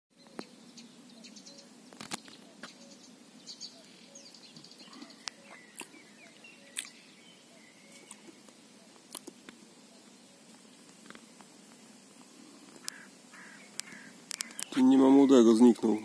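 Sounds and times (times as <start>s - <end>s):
small birds chirping: 0.1s - 16.0s
sharp clicks: 12.7s - 13.0s, 13.7s - 14.8s.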